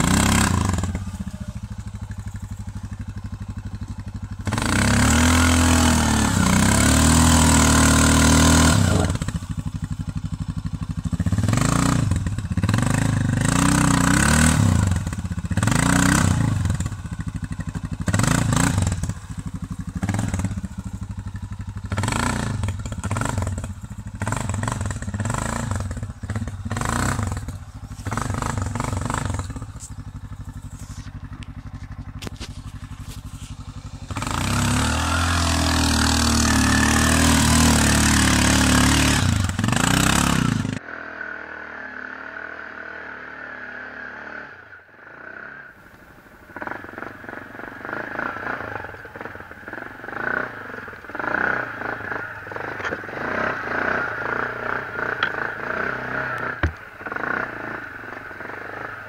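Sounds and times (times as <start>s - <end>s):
quad bike engine revving: 0.0s - 59.0s.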